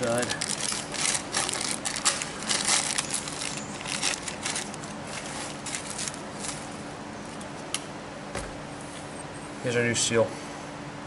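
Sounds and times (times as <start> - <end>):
plastic packaging crinkling: 0.0 - 6.8
faint steady hum: 0.0 - 11.0.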